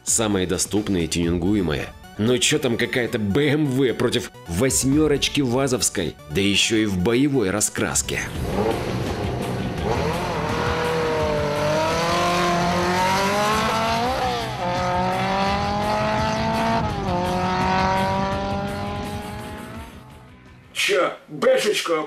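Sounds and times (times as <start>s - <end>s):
car engines revving hard: 8.3s - 20.2s.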